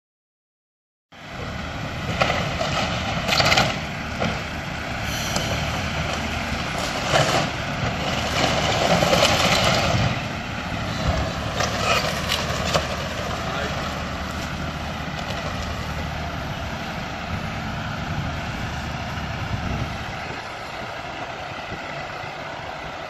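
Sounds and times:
heavy diesel engine droning: 0:01.1 - 0:23.0
wood splintering and debris falling: 0:06.1 - 0:10.2.

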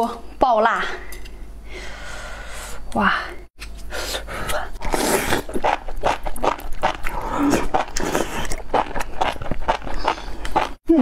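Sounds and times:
wet chewing: 0:04.8 - 0:10.8.

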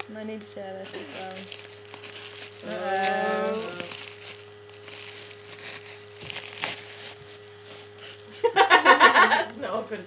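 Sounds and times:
wrapping paper crinkling: 0:00.8 - 0:08.5.

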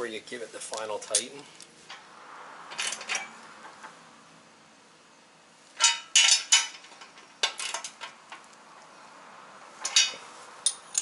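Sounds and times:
wrenches clinking on metal: 0:02.7 - 0:03.4, 0:05.8 - 0:08.4, 0:09.8 - 0:11.0.

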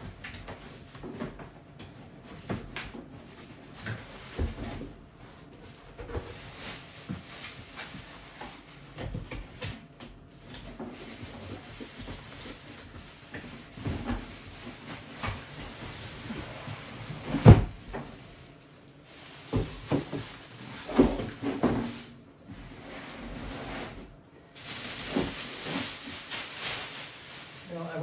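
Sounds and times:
cardboard scraping and rustling: 0:10.8 - 0:27.8.

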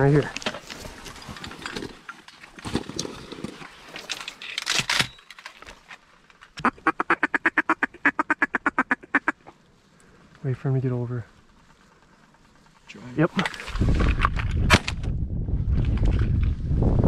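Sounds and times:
duck call quacks: 0:06.6 - 0:09.4.

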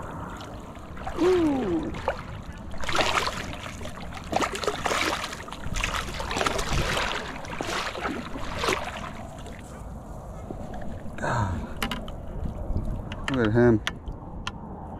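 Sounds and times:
shallow water splashing: 0:00.0 - 0:13.1
man saying ooh: 0:01.2 - 0:02.0.

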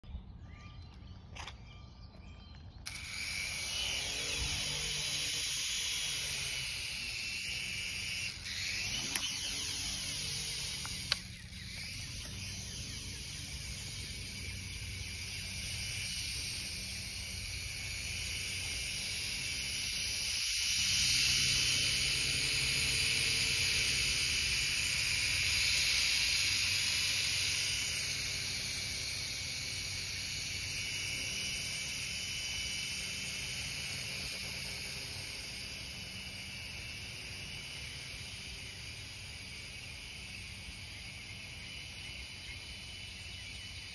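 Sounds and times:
toy helicopter rotors whirring: 0:02.7 - 0:43.9
sharp clicks: 0:04.8 - 0:13.8.

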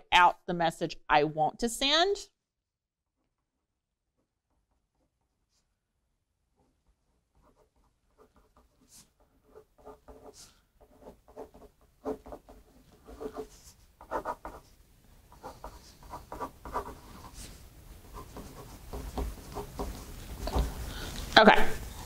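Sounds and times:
pen writing on paper: 0:07.4 - 0:14.7, 0:15.3 - 0:20.7.

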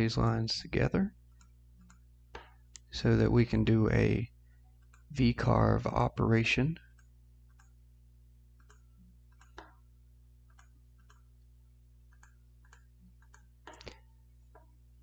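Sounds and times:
low steady hum: 0:00.0 - 0:15.0
faint mouse clicks: 0:08.6 - 0:09.8, 0:10.5 - 0:11.3, 0:12.1 - 0:14.7.

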